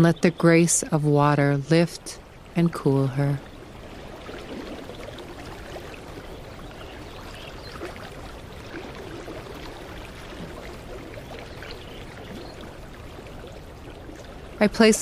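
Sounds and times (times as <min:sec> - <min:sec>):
creek babbling: 0:00.0 - 0:15.0.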